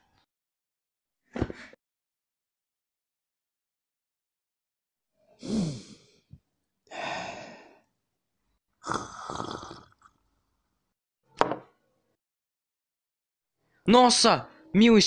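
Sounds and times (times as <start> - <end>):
breathy sigh: 5.4 - 6.3, 6.9 - 7.9
glass knocking down on surface: 11.4 - 11.7.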